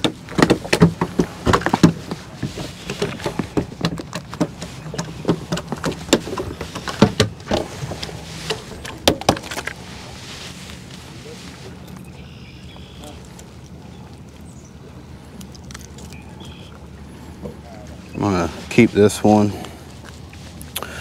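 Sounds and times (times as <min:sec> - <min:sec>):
knocks and rattles on boat: 0:00.0 - 0:11.5.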